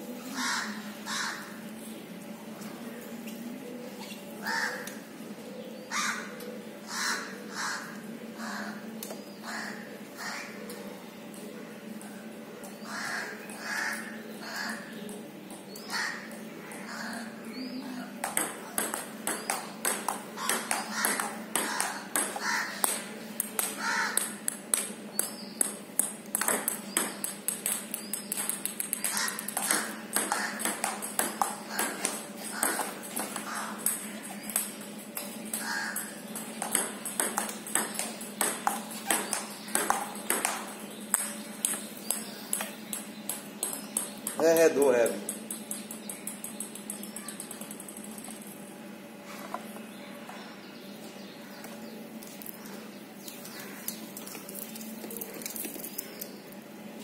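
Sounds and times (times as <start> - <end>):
table tennis ball hits: 18.2 - 34.8, 35.5 - 44.6.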